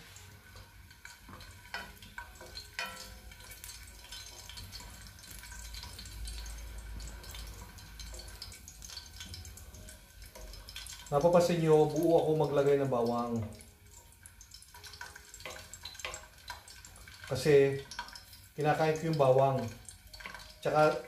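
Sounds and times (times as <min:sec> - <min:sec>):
wooden spoon stirring: 0:00.0 - 0:12.8
oil sizzling in a frying pan: 0:00.0 - 0:21.0.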